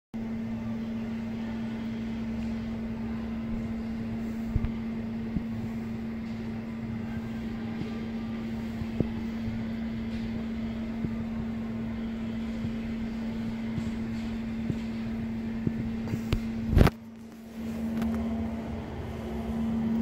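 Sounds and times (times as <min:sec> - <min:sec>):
machine hum with low tone: 0:00.2 - 0:20.0.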